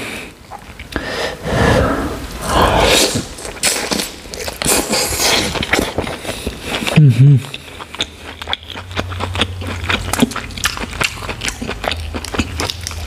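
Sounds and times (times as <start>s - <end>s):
chewing: 3.1s - 13.0s
biting and tearing meat: 3.2s - 13.0s.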